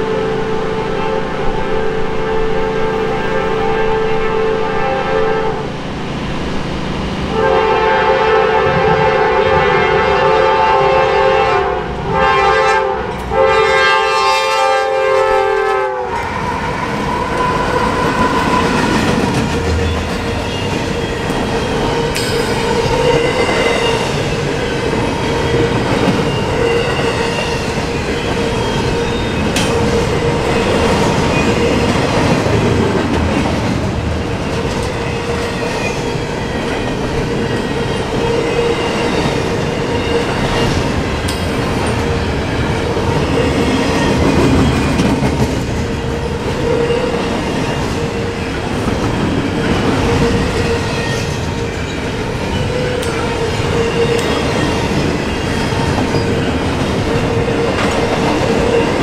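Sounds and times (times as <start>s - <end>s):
train rumble and wheel clatter: 0.0s - 59.0s
locomotive air horn blasts: 0.1s - 5.8s, 7.3s - 16.4s.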